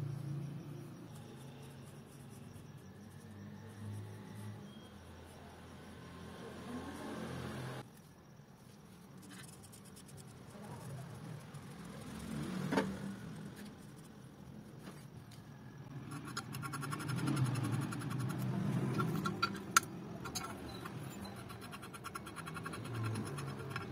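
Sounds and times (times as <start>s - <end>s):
fine ticking and scraping of metal: 15.9s - 23.9s.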